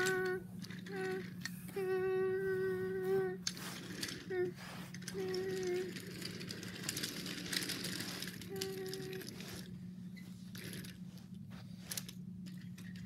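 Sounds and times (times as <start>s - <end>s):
toy train cars clattering on track: 0.0s - 1.5s, 3.4s - 9.7s, 10.5s - 11.0s, 11.9s - 13.0s.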